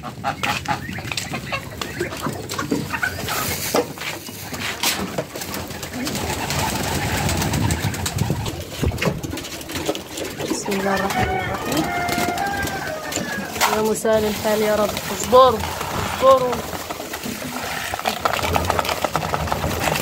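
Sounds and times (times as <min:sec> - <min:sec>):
pigeons cooing: 0:00.0 - 0:20.0
rustling: 0:01.9 - 0:20.0.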